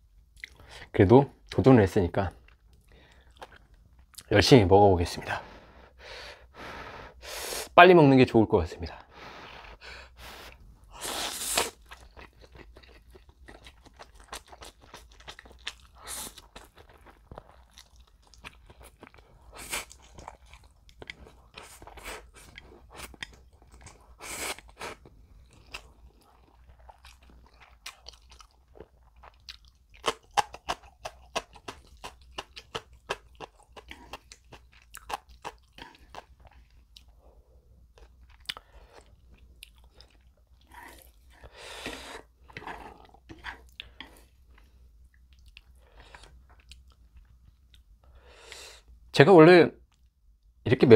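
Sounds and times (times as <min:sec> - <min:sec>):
slurping noodles: 0:09.4 - 0:11.8, 0:40.7 - 0:44.3
wet chewing and smacking: 0:11.7 - 0:37.2, 0:37.9 - 0:48.0.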